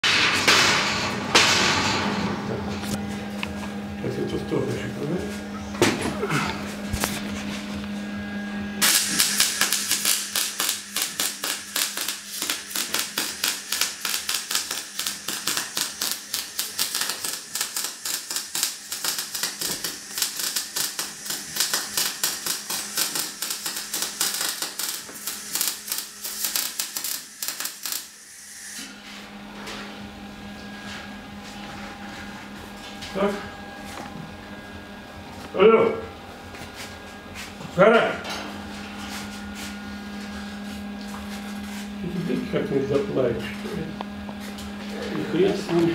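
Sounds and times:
arc welding crackling: 8.8s - 28.8s.

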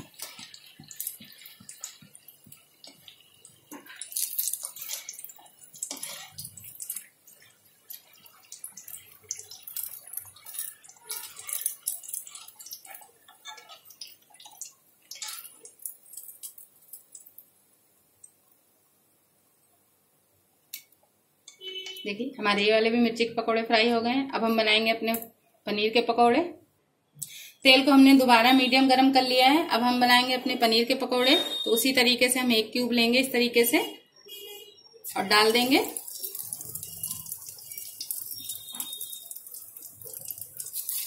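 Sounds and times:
oil bubbling and sizzling: 0.0s - 22.1s, 35.0s - 41.0s
wire skimmer scraping a pan: 10.2s - 13.9s.

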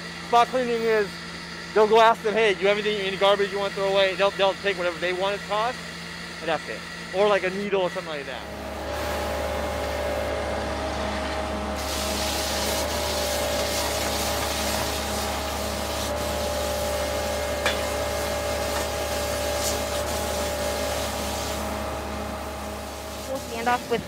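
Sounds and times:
machine hum: 0.0s - 24.0s
pressure washer spray hissing: 11.7s - 21.7s, 22.7s - 24.0s.

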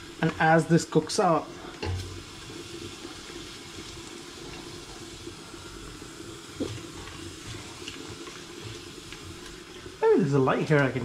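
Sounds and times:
pots cooking with watery hiss: 0.0s - 11.0s.

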